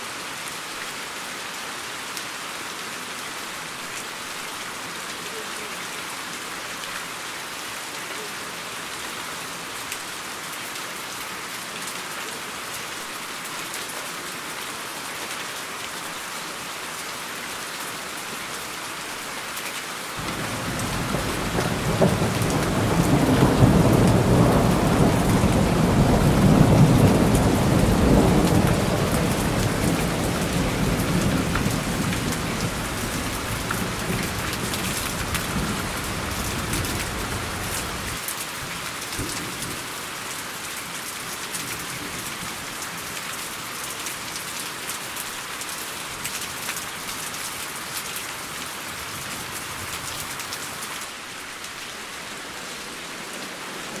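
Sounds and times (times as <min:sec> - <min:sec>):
low thunder rumble: 0:20.2 - 0:34.1
rain hissing: 0:20.2 - 0:38.3.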